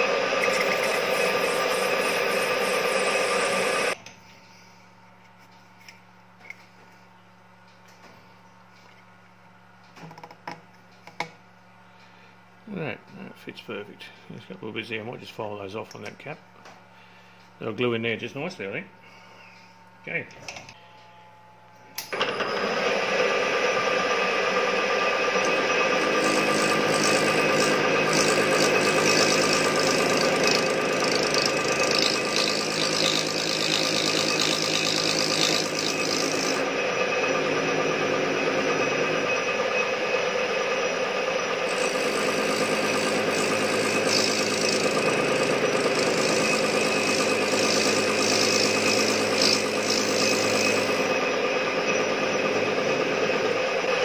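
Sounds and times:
lathe tool cutting metal: 0:00.0 - 0:04.0, 0:22.2 - 0:54.0
metal lathe whining: 0:00.0 - 0:04.0, 0:22.2 - 0:54.0.

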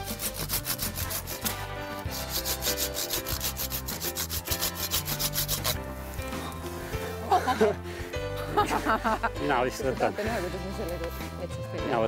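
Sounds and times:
hand saw cutting branches: 0:00.0 - 0:05.9.

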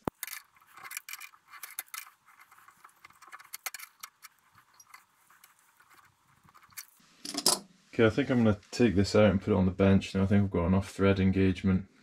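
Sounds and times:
metallic clicks and scrapes: 0:00.0 - 0:07.7.

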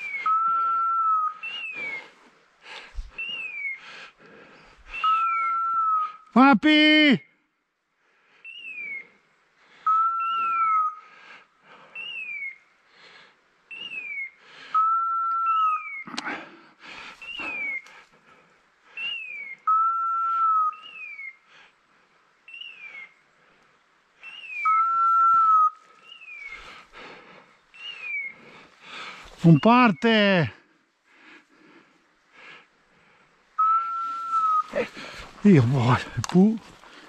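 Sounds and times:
footsteps through dry brush: 0:28.0 - 0:29.6, 0:33.9 - 0:37.0.

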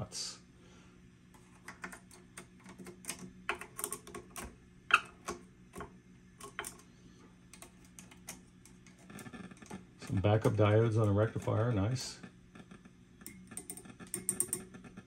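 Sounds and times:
low steady hum: 0:00.0 - 0:15.0
probe tapping components: 0:07.5 - 0:15.0.

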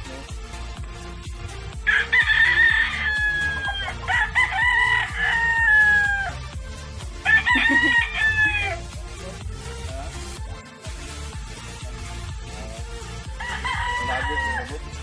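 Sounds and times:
background music with steady beat: 0:00.0 - 0:15.0
rooster crowing: 0:01.8 - 0:06.4, 0:07.2 - 0:08.9, 0:13.3 - 0:15.0.

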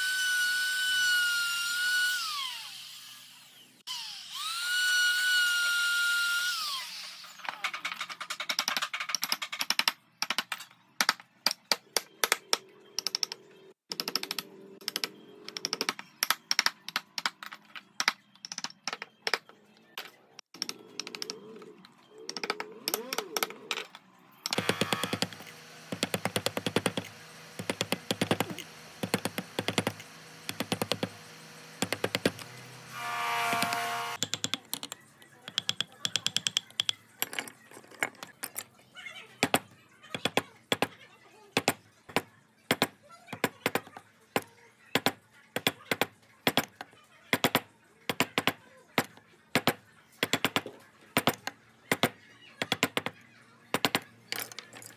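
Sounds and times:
small power tool whine: 0:00.0 - 0:07.4, 0:24.5 - 0:34.2
carving tools tapping wood: 0:24.5 - 0:32.6, 0:33.4 - 0:37.0, 0:41.6 - 0:54.0.

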